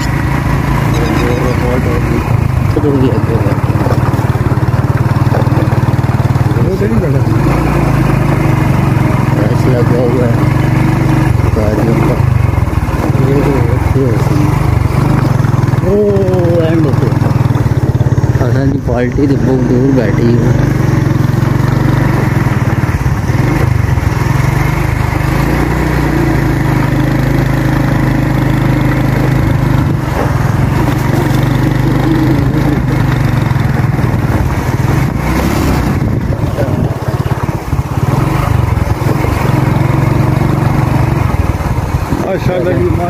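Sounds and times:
motorcycle engine running: 0:00.0 - 0:43.0.

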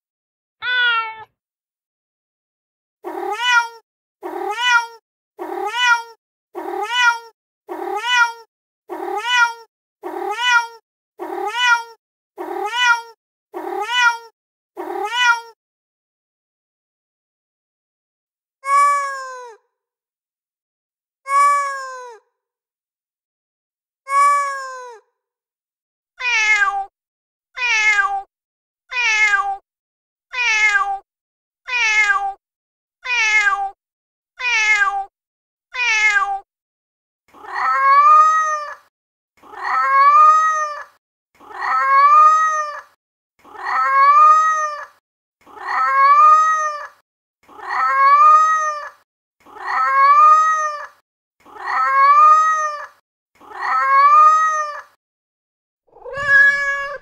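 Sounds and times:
recorded cat meows: 0:00.6 - 0:01.4, 0:03.0 - 0:15.6, 0:18.6 - 0:19.6, 0:21.2 - 0:22.3, 0:24.1 - 0:25.1, 0:26.2 - 0:26.9, 0:27.6 - 0:28.3, 0:28.9 - 0:29.6, 0:30.3 - 0:31.0, 0:31.7 - 0:32.4, 0:33.0 - 0:33.8, 0:34.4 - 0:35.1, 0:35.7 - 0:36.5, 0:37.3 - 0:55.0, 0:55.9 - 0:57.0.

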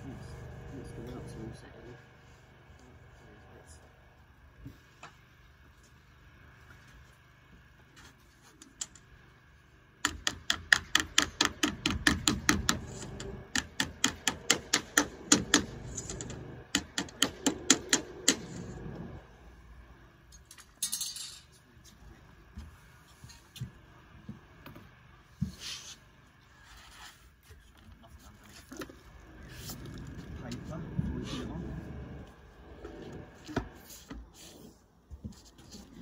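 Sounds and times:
rapid hammer blows: 0:10.0 - 0:18.7.

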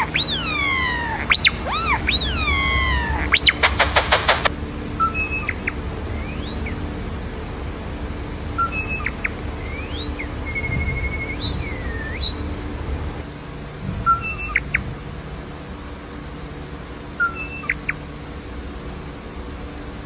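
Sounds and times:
starling whistling robot-like beeps: 0:00.0 - 0:06.8, 0:08.6 - 0:12.4, 0:14.1 - 0:14.9, 0:17.2 - 0:18.0.

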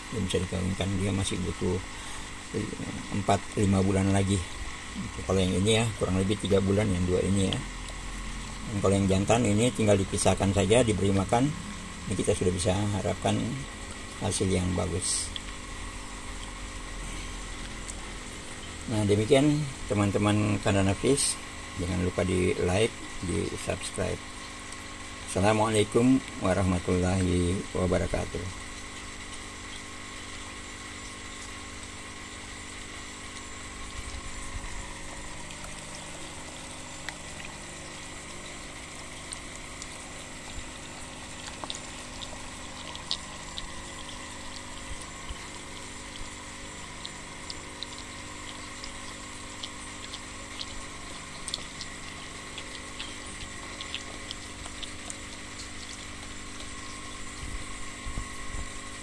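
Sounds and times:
electric pump humming: 0:00.0 - 0:59.0
fish splashing: 0:01.6 - 0:18.9, 0:28.5 - 0:59.0
water bubbling: 0:28.5 - 0:59.0.

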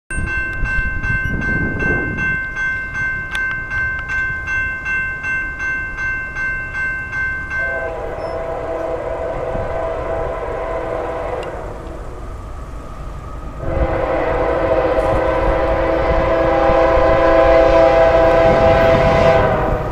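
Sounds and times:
railroad crossing bell ringing: 0:00.1 - 0:19.9
freight locomotive horn chord: 0:07.4 - 0:19.9.

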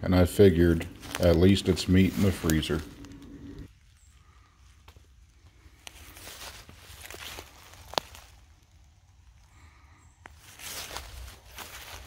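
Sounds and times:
footsteps in dry leaves: 0:00.1 - 0:09.0, 0:09.6 - 0:12.0
twig snapping: 0:06.6 - 0:08.7.

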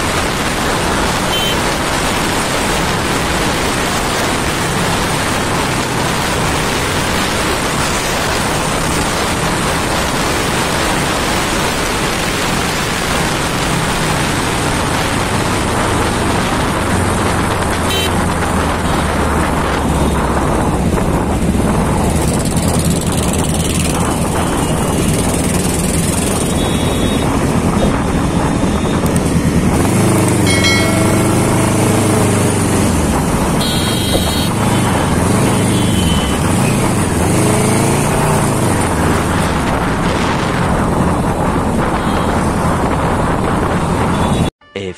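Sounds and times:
motorcycle engine drone: 0:00.0 - 0:44.5
vehicle horns tooting: 0:01.3 - 0:01.7, 0:17.8 - 0:18.2, 0:26.4 - 0:28.0, 0:33.6 - 0:36.5, 0:41.9 - 0:42.5
wind on microphone: 0:34.2 - 0:44.5.

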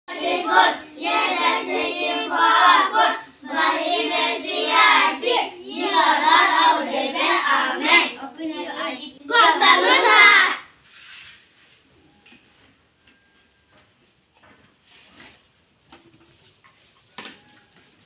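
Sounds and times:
children singing in unison: 0:00.1 - 0:10.6.

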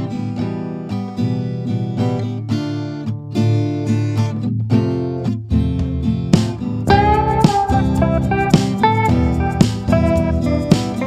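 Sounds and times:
acoustic guitar music: 0:00.0 - 0:11.0.

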